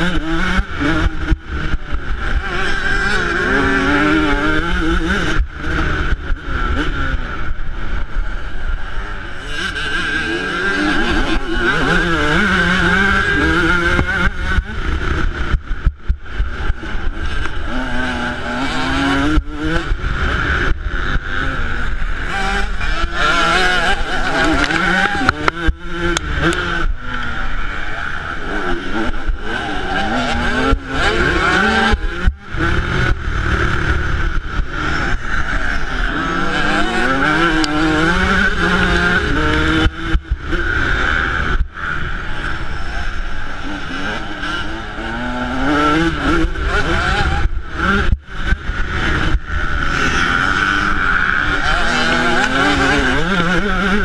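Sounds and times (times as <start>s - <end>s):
motocross bike engine revving: 0.0s - 54.0s.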